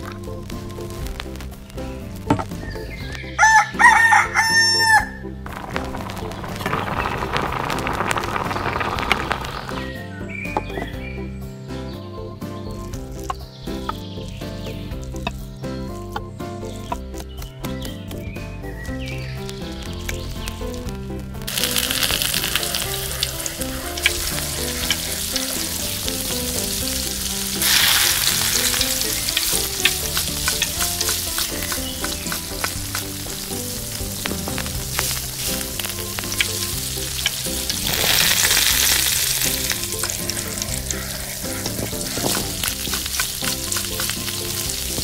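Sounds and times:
butter sizzling in a pan: 5.5s - 10.0s, 19.1s - 45.0s.

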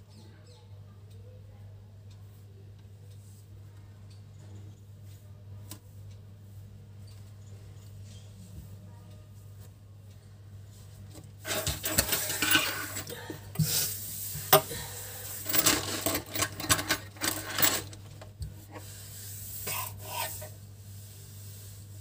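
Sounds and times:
rubbing and scraping handling noise: 10.8s - 22.0s.

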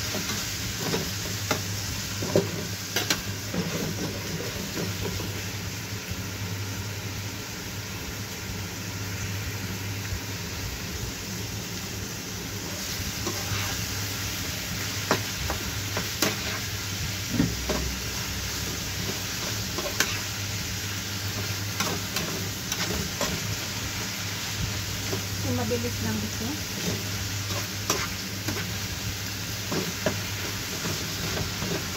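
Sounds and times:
food sizzling in a frying pan: 0.0s - 31.9s
spatula scraping a pan: 13.1s - 14.0s, 15.0s - 16.8s, 17.5s - 20.4s, 21.3s - 23.7s, 26.6s - 31.9s.

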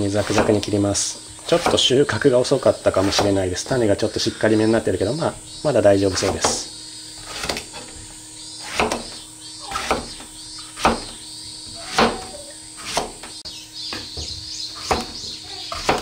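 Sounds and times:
knife cutting on plastic board: 8.6s - 10.2s, 11.8s - 13.3s.

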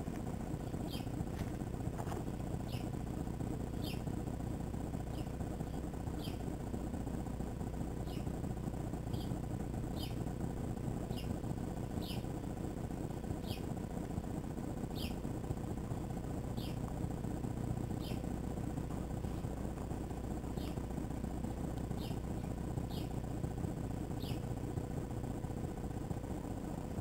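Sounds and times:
steady low rumble: 0.0s - 27.0s
bird chirping: 0.6s - 1.2s, 2.6s - 3.0s, 3.8s - 4.1s, 5.1s - 6.5s, 8.0s - 8.4s, 9.1s - 10.2s, 11.1s - 12.3s, 13.4s - 13.7s, 14.9s - 15.2s, 16.5s - 16.8s, 17.9s - 18.3s, 20.5s - 20.8s, 21.9s - 23.2s, 24.2s - 24.6s.

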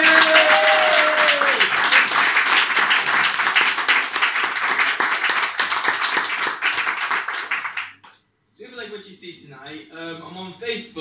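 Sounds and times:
audience applauding: 0.0s - 8.0s.

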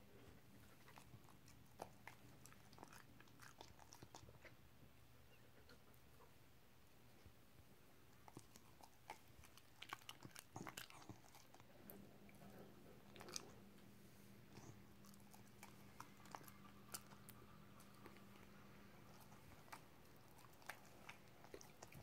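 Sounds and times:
dog chewing: 0.6s - 4.5s, 8.2s - 13.7s, 14.5s - 22.0s.

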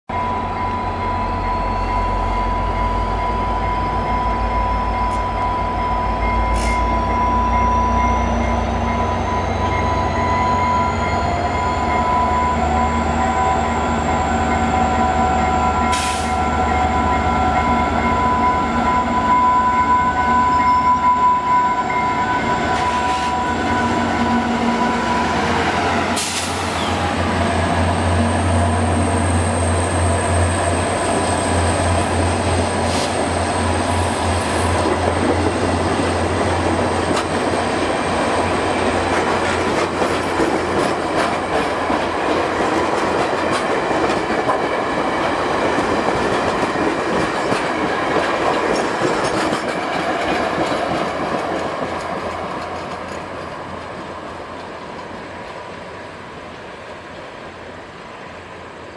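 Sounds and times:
diesel locomotive engine rumble: 0.1s - 58.9s.

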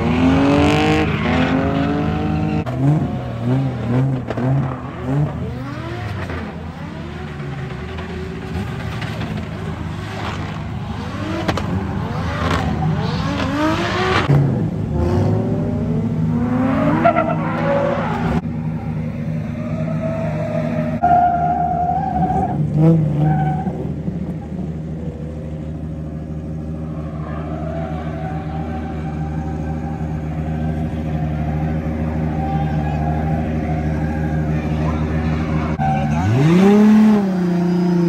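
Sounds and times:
car engines revving: 0.0s - 38.0s.

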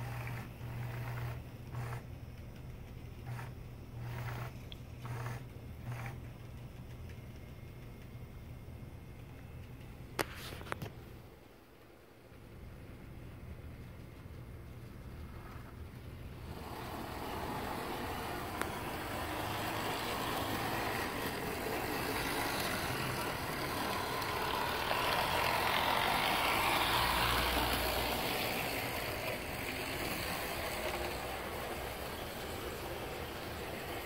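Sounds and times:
model train motor whirring: 0.0s - 2.1s, 3.1s - 6.3s, 15.3s - 34.0s
model train wheels rattling: 0.0s - 7.8s, 13.7s - 34.0s.

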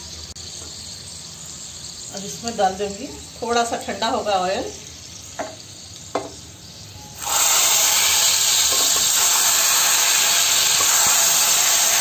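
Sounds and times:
hot oil hissing and sizzling: 0.0s - 12.0s.

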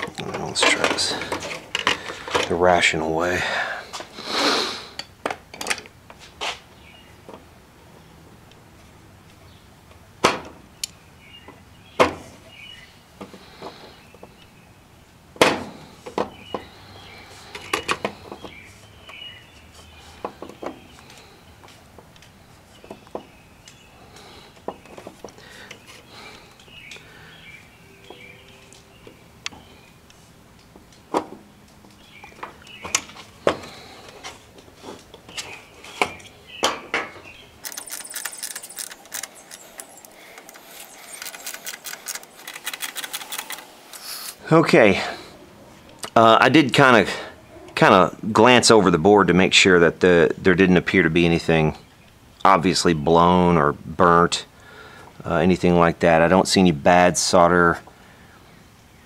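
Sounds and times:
pliers and plastic parts clicking: 37.6s - 44.4s.

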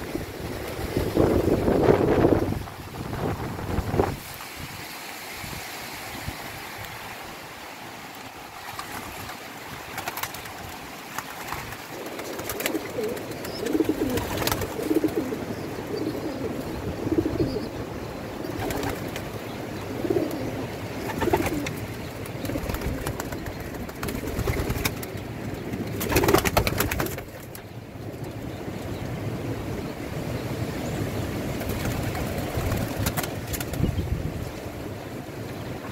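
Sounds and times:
wind hiss: 0.0s - 25.2s
pigeon wings flapping: 8.6s - 15.4s, 18.4s - 19.4s, 20.1s - 27.6s, 31.6s - 34.0s
pigeons cooing: 11.8s - 25.1s.

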